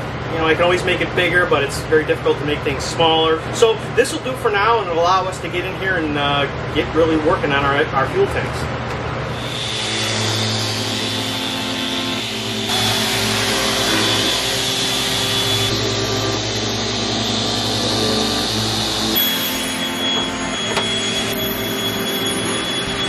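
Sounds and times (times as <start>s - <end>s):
electric sander whining: 9.3s - 23.0s
dust extraction vacuum hiss: 9.4s - 23.0s.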